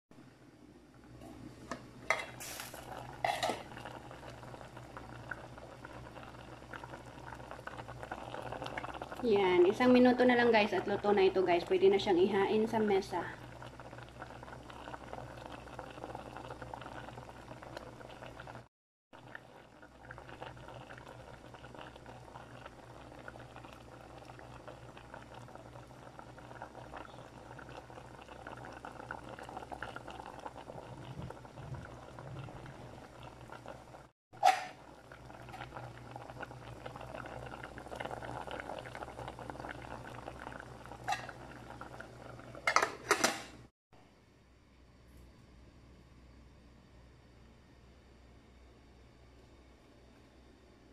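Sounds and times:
broth bubbling in a pot: 0.2s - 43.2s.

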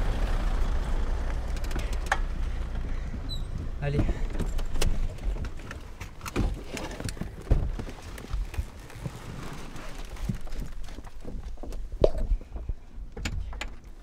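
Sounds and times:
knocks and thumps: 3.1s - 8.5s.

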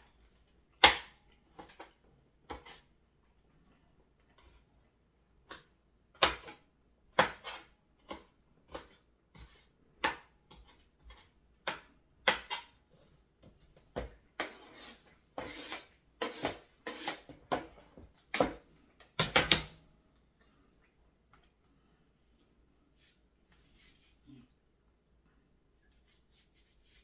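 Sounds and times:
utensils scraping: 14.4s - 17.3s.

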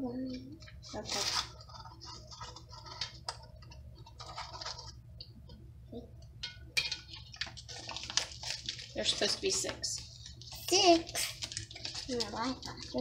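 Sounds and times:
plastic spoons clicking and scraping: 0.3s - 5.0s, 6.4s - 13.0s.

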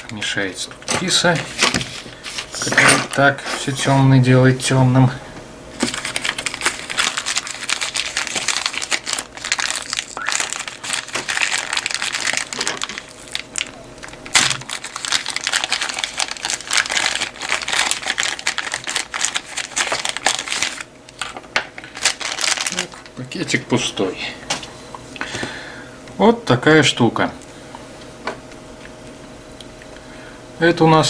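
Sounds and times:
packaging crinkling: 5.7s - 23.2s
loud packaging crack: 5.8s - 23.1s.

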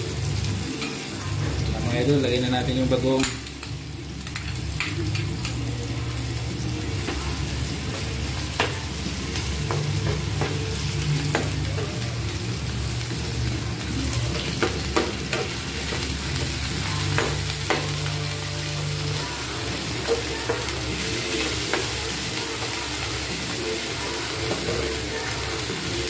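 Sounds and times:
vegetables sizzling in a pan: 0.0s - 26.0s.

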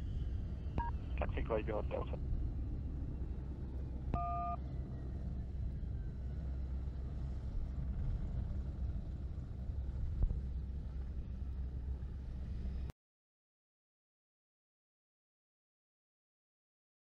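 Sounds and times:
jet engine low rumble: 0.0s - 12.9s
two-tone electronic beep: 4.2s - 4.6s.

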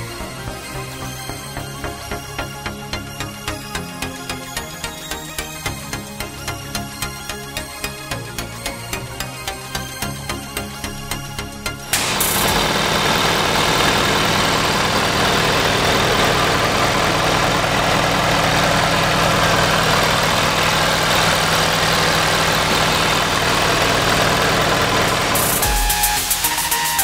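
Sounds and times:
music: 0.0s - 27.0s
truck engine idling: 12.0s - 27.0s.

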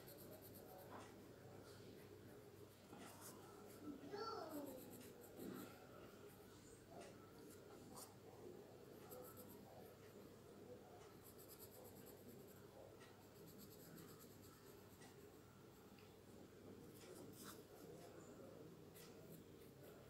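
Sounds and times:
pencil scratching on paper: 0.0s - 1.1s, 2.6s - 6.4s, 8.9s - 10.1s, 11.0s - 15.4s, 17.0s - 18.1s, 18.9s - 20.0s.

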